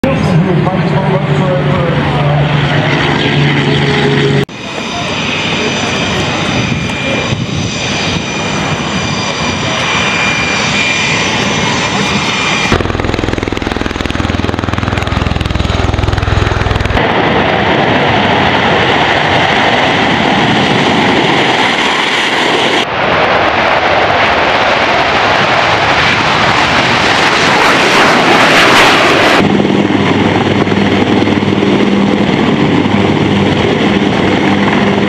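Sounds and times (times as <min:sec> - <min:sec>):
jet engines roaring with whine: 0:00.0 - 0:35.0
deep rotor beat: 0:12.7 - 0:17.0.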